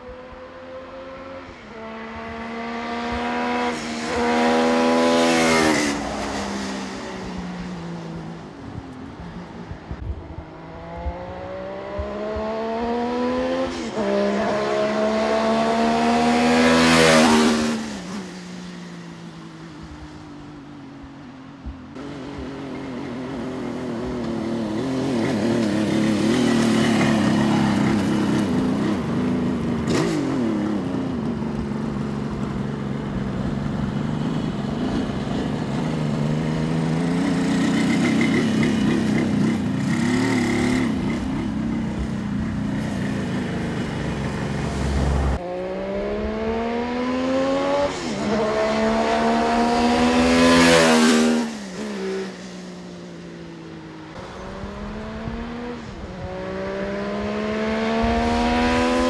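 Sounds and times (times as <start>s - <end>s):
motorcycle two-stroke engine passing: 10.6s - 19.5s, 22.0s - 33.2s, 33.9s - 59.0s.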